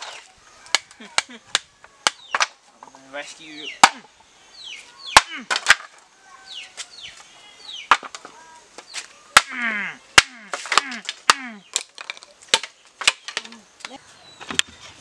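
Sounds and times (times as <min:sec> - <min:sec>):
axe chopping bamboo: 0:03.8 - 0:04.1, 0:05.2 - 0:05.9, 0:09.4 - 0:13.6.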